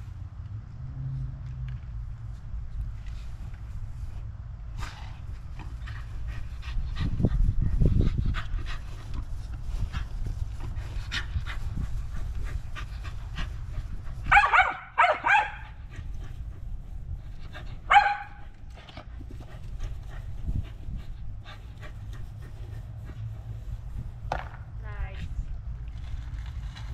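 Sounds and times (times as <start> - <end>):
dog panting: 4.8 - 14.4, 15.6 - 24.2
dog barking: 14.3 - 15.7, 17.9 - 18.4
low rumble: 15.6 - 26.9.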